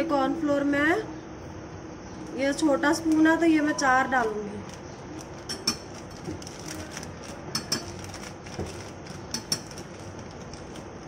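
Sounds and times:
metal spoon clinking on glass: 5.5s - 5.9s, 7.5s - 8.0s.

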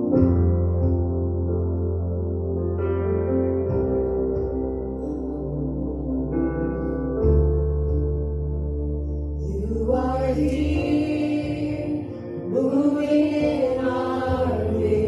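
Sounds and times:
sustained low bass notes: 0.0s - 15.0s
person singing long gliding notes: 9.4s - 15.0s.

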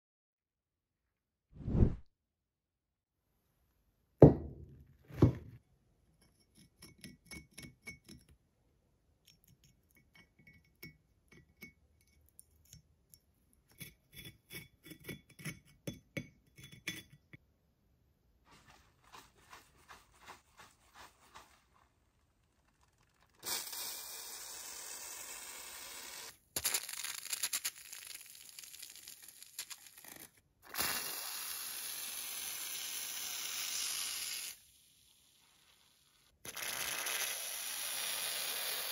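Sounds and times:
axe head thudding on wooden table: 4.2s - 5.5s
aerosol can spraying: 23.2s - 26.9s, 36.5s - 38.9s.

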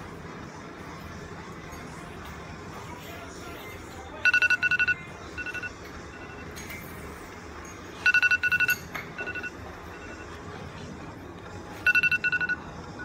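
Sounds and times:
digital timer alarm beeping: 4.2s - 6.6s, 8.0s - 10.3s, 11.8s - 13.0s.

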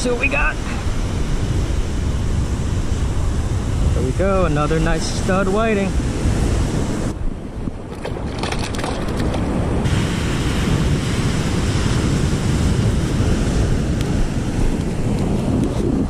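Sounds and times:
ocean surf breaking: 0.0s - 16.0s
wind buffeting microphone: 0.0s - 16.0s.

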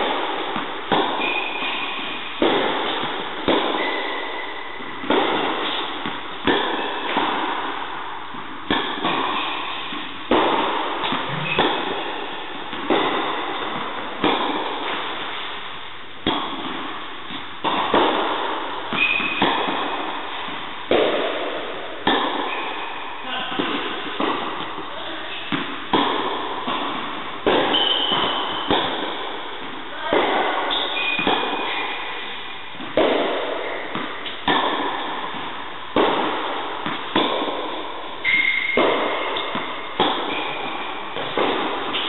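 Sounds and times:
tennis ball bouncing on court: 0.0s - 15.5s, 16.2s - 42.0s
tennis ball off racket strings: 8.3s - 15.5s, 23.6s - 42.0s.

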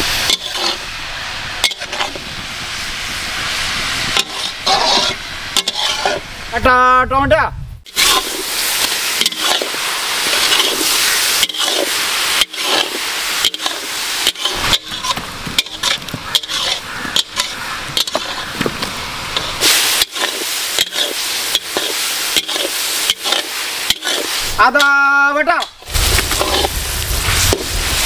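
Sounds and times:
vegetables sizzling in oil: 0.0s - 6.6s, 7.8s - 28.0s
clicks and scrapes in a pan: 0.2s - 0.8s, 1.6s - 2.2s, 4.1s - 6.2s, 7.9s - 25.0s, 25.6s - 26.8s.

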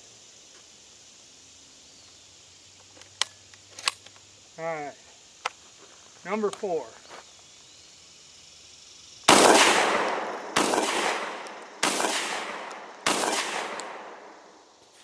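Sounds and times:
gunshot echo: 9.3s - 14.5s
shotgun shots: 9.3s - 14.5s.

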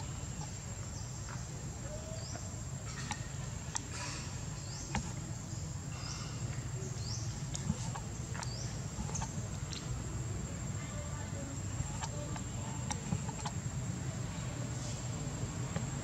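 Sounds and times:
faint clicks: 7.3s - 10.0s, 11.7s - 13.7s.

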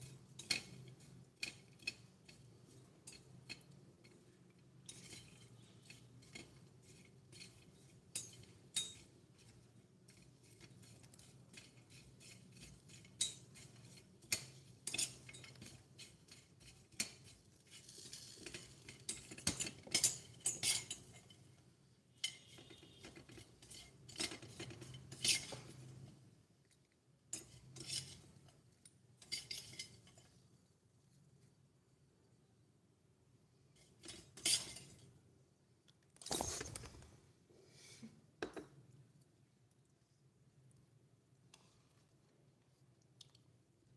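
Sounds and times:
metal utensils scraping a pot: 0.0s - 21.6s, 22.2s - 26.2s, 27.3s - 28.6s, 29.2s - 30.4s, 33.7s - 35.1s.

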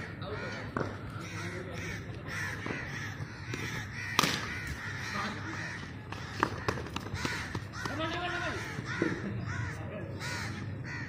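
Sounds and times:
crows cawing: 0.0s - 11.0s
cricket bat striking ball: 0.7s - 1.0s, 3.5s - 4.5s, 6.1s - 8.0s.

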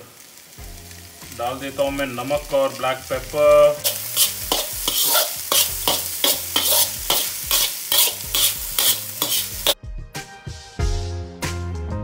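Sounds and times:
rice sizzling: 0.0s - 9.8s
background music: 0.4s - 12.0s
spoon scraping rice in a wok: 3.8s - 9.8s.

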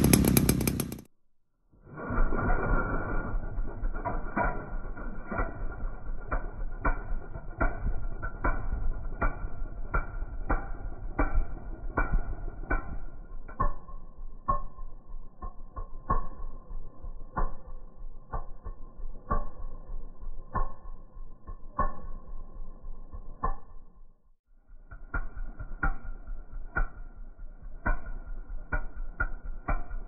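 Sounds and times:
low rumble: 1.8s - 29.9s
slowed engine deep thumps: 2.0s - 13.8s.

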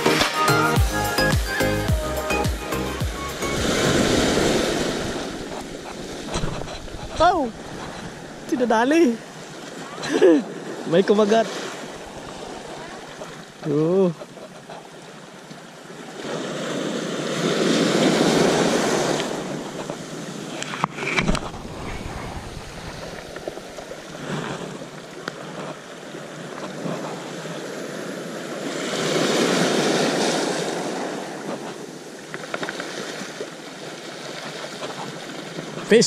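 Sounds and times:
waves washing over pebble beach: 3.6s - 9.8s, 16.1s - 36.0s.

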